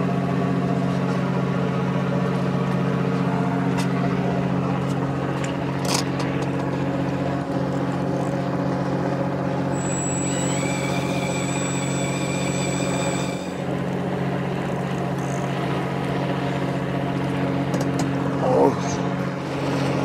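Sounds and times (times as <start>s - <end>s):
boat engine humming: 0.0s - 20.0s
thin high whine: 9.6s - 14.3s.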